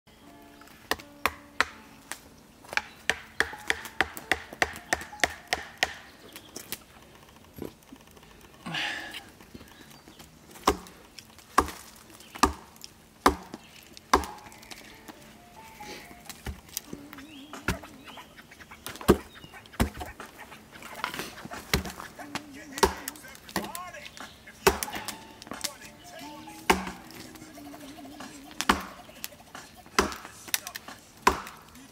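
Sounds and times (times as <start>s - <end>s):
machete chopping wood: 0.9s - 6.1s, 10.6s - 14.8s, 18.9s - 20.3s, 21.0s - 22.1s, 22.8s - 23.8s, 24.6s - 25.8s, 26.6s - 27.2s, 28.6s - 29.0s, 29.8s - 31.8s
wood striking wood: 0.9s - 6.8s, 10.6s - 14.9s, 18.9s - 23.8s, 24.6s - 25.7s, 26.6s - 27.2s, 28.5s - 29.0s, 29.9s - 31.8s.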